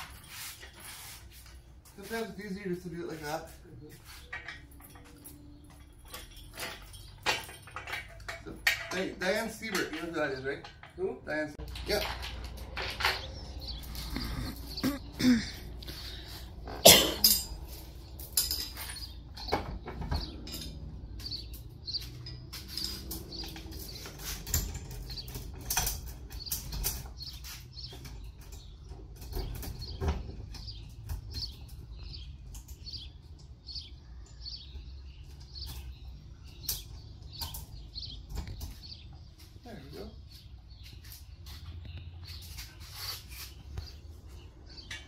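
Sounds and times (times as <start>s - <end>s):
metal tools clinking and knocking: 3.9s - 16.0s, 16.6s - 33.6s.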